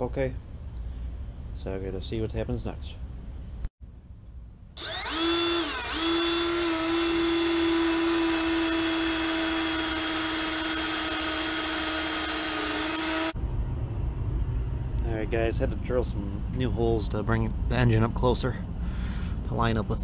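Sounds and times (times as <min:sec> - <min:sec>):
cordless drill boring through metal: 0:04.8 - 0:13.4.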